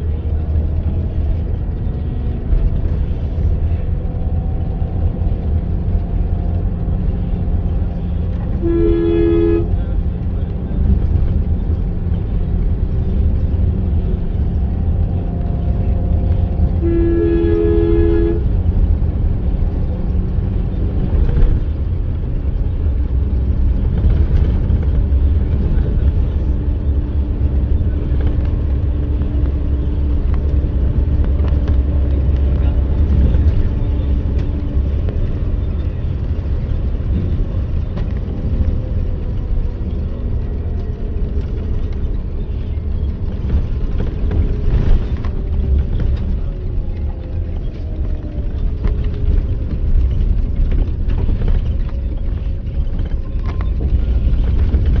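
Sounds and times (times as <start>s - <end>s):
bus engine and road noise: 0.0s - 55.0s
vehicle horn: 8.3s - 10.0s, 16.7s - 18.6s.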